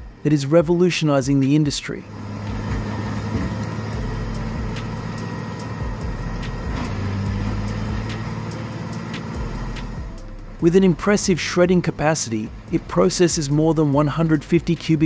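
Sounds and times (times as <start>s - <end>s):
heavy engine drone: 0.0s - 15.0s.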